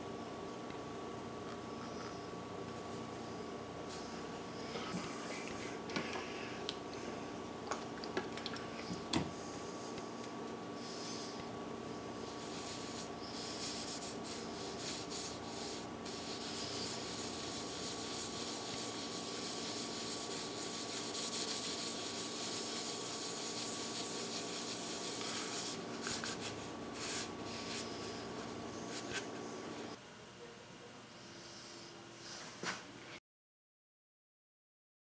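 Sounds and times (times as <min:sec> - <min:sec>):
faint steady hum: 0:00.0 - 0:33.2
cloth rag scrubbing wood: 0:12.3 - 0:28.0.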